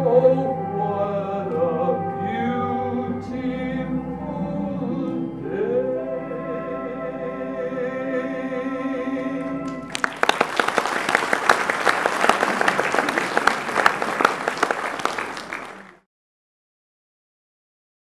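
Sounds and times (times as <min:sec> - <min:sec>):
man singing with accompaniment: 0:00.0 - 0:09.8
audience applause: 0:09.7 - 0:16.0.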